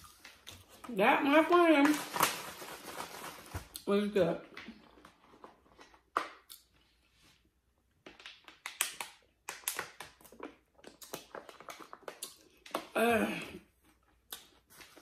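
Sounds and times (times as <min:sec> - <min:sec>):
plastic bottle crackling and clicking: 0:08.0 - 0:12.9
chewing with crackles: 0:10.0 - 0:12.8.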